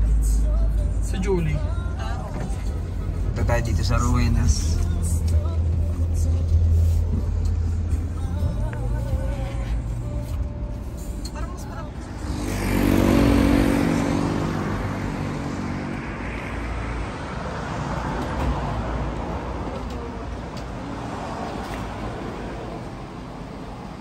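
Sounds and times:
road traffic noise: 0:00.0 - 0:24.0
vehicle passing close by: 0:11.9 - 0:24.0.

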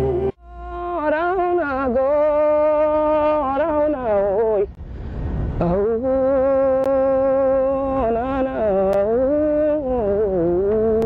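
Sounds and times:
woman singing without words: 0:00.0 - 0:04.7.

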